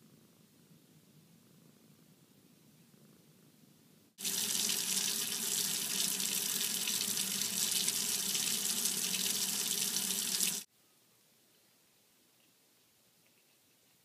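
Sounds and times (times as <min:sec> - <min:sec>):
faucet water running into sink: 0:04.2 - 0:10.7.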